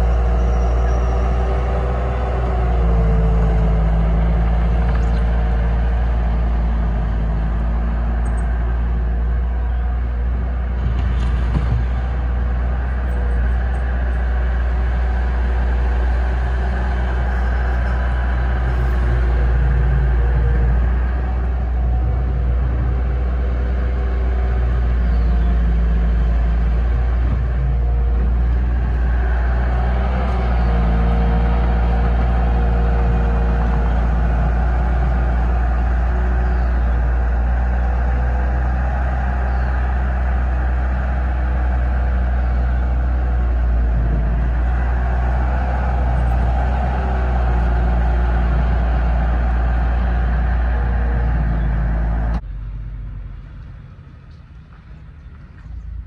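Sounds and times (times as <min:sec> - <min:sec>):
heavy vehicle engine rumbling: 0:00.0 - 0:56.0.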